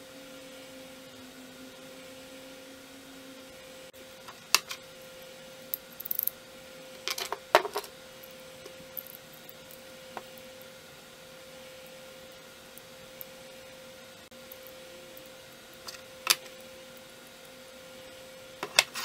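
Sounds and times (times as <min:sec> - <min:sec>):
faint steady hum: 0:00.0 - 0:19.0
metal parts clinking: 0:05.7 - 0:06.3, 0:08.6 - 0:10.3.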